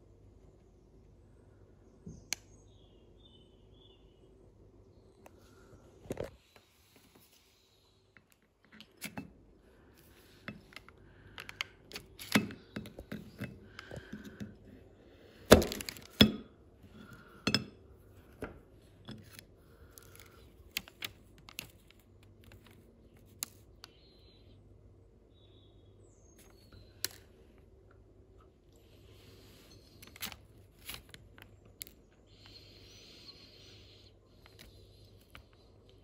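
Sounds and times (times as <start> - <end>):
knife cutting through fudge: 11.4 - 14.6.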